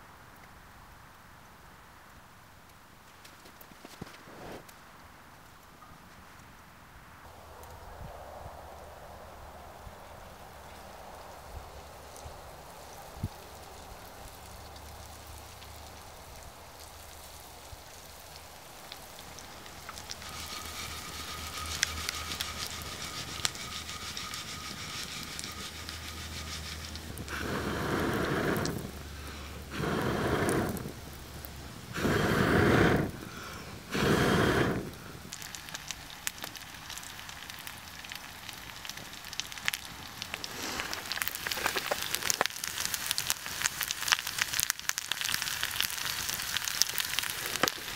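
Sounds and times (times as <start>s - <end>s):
campfire crackling: 0.0s - 47.9s
food frying in a pan: 11.0s - 29.2s, 35.2s - 47.9s
breaths blown onto embers: 12.0s - 47.9s.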